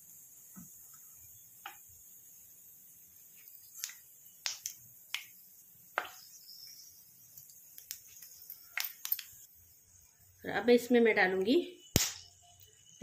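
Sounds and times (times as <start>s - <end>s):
spices sizzling in hot oil: 0.0s - 13.0s
oil popping and crackling: 0.5s - 2.0s, 3.1s - 9.5s, 11.9s - 12.3s.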